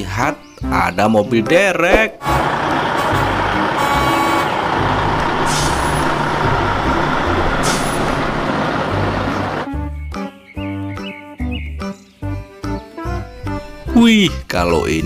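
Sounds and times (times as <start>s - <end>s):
tow truck diesel engine rumble: 2.2s - 9.7s
air brake hisses: 5.4s - 6.2s, 7.6s - 8.2s.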